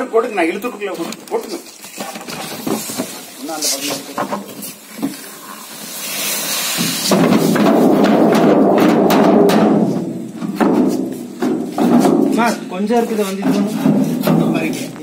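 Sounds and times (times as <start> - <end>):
grain spilling and knocks: 1.4 - 8.8
rush of pouring grain: 2.6 - 8.0.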